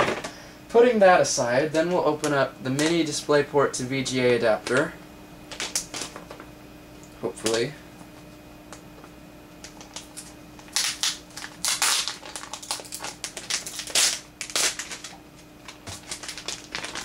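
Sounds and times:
plastic packaging crinkling: 0:05.5 - 0:06.2, 0:09.6 - 0:17.0.

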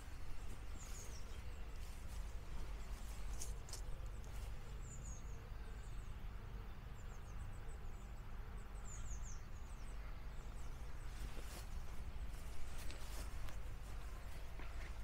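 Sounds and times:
steady low rumble: 0:00.0 - 0:05.4
small birds twittering: 0:00.0 - 0:15.0.

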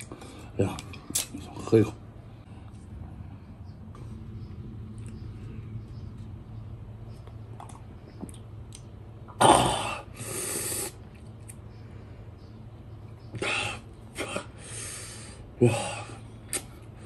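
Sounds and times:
sharp exhale: 0:10.1 - 0:11.0
breathy hiss through teeth: 0:10.1 - 0:11.1.

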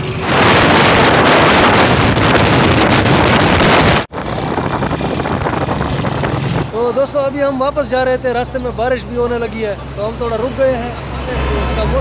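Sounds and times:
wind blasting microphone: 0:00.0 - 0:07.0
motorcycle engines running: 0:00.0 - 0:12.0.

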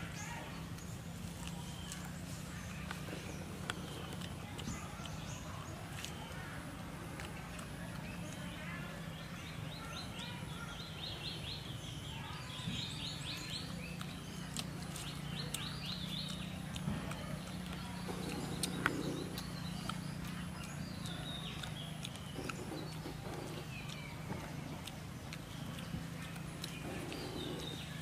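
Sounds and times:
steady low hum: 0:13.0 - 0:28.0.

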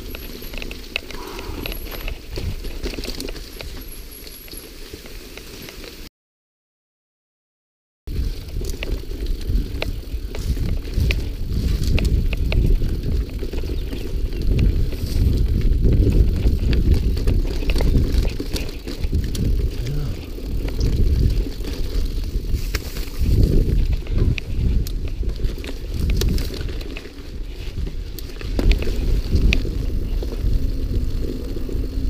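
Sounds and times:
bike rattling and clicking: 0:00.0 - 0:06.1, 0:08.1 - 0:32.0
tyres rumbling on dirt: 0:08.1 - 0:32.0
wind buffeting microphone: 0:08.1 - 0:32.0.

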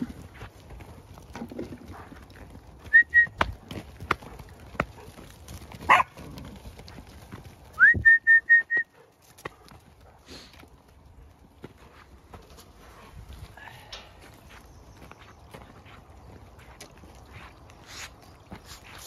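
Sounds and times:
hooves on frozen ground: 0:00.0 - 0:19.0
shrill whistled signals: 0:02.9 - 0:03.4, 0:07.8 - 0:08.9.

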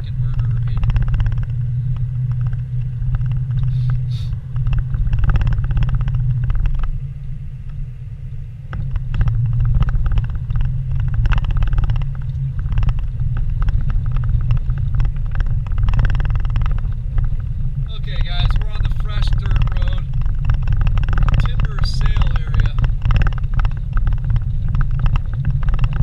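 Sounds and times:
knocks and rattles: 0:00.0 - 0:03.7, 0:04.5 - 0:07.0, 0:08.7 - 0:26.0
vehicle engine and road rumble: 0:00.0 - 0:26.0.

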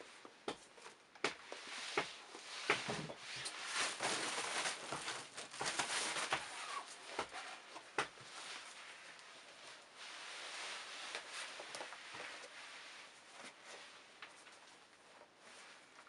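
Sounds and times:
rustling: 0:00.0 - 0:16.0.

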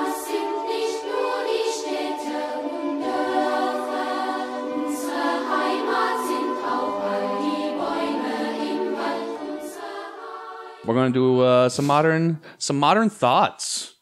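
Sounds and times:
choir singing held chords: 0:00.0 - 0:11.2.

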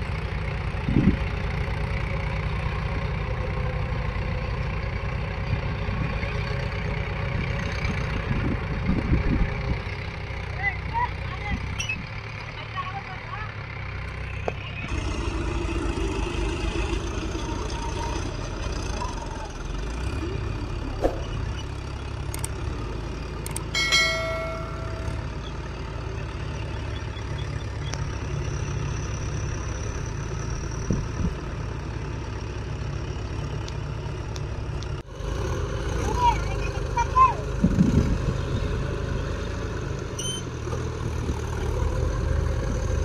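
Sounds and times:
tractor engines running: 0:00.0 - 0:43.0
short bell-like ring: 0:23.8 - 0:25.5.

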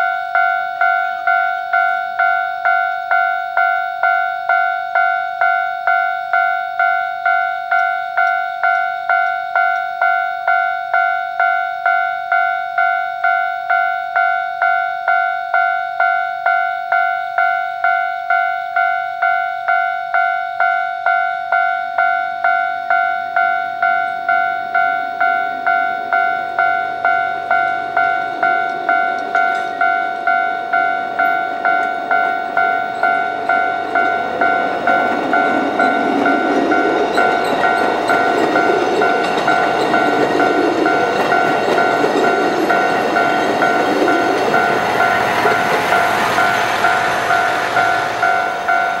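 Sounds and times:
level crossing bell ringing: 0:00.0 - 0:49.0
train rumbling over crossing: 0:22.8 - 0:49.0.

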